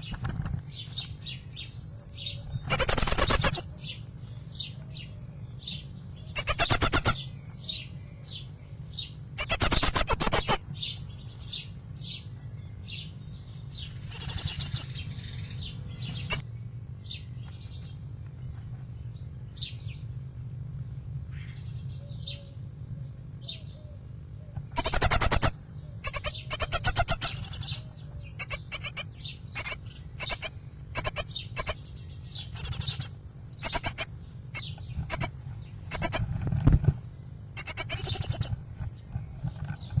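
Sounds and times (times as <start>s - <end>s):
steady low hum: 0.0s - 40.0s
rasping bird calls: 2.2s - 4.0s, 6.2s - 7.3s, 9.4s - 10.7s, 13.8s - 16.4s, 24.5s - 40.0s.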